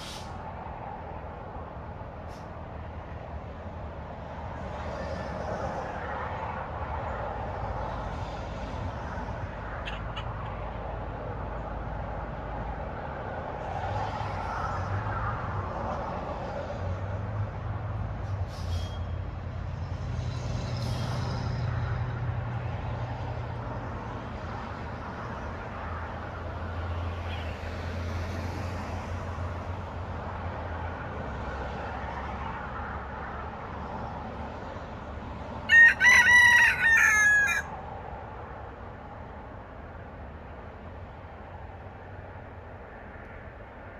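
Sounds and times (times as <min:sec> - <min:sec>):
rooster crowing: 0:35.6 - 0:37.8.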